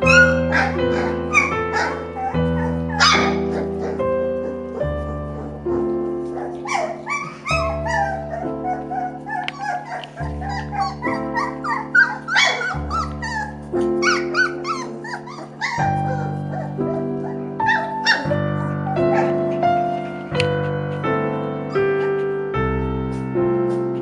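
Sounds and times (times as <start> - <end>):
puppies yipping and whimpering: 0.0 - 20.1
background music: 0.0 - 24.0.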